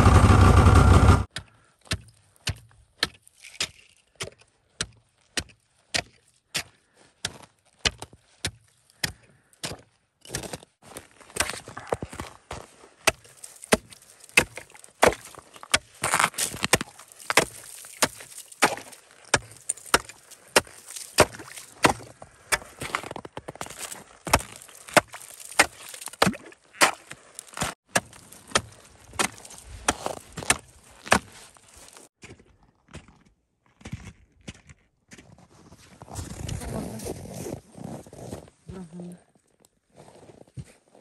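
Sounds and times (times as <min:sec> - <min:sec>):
sharp chopping strikes: 0:13.1 - 0:22.9, 0:23.6 - 0:31.3.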